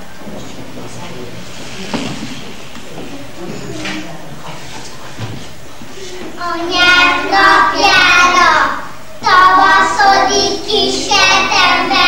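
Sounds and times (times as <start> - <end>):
children singing in unison: 6.3 - 12.0.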